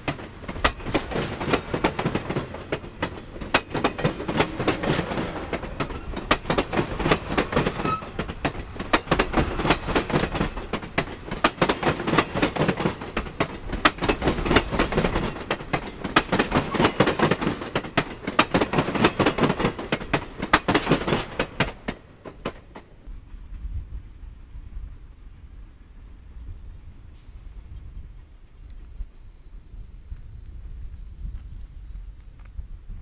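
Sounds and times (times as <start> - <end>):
train wheels clicking over rail joints: 0.0 - 23.6
train rumble: 0.0 - 33.0.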